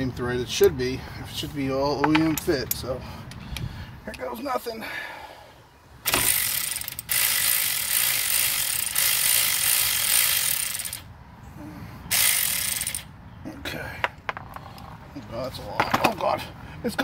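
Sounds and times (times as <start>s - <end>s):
electric ratchet running: 6.1s - 11.1s, 12.1s - 13.1s.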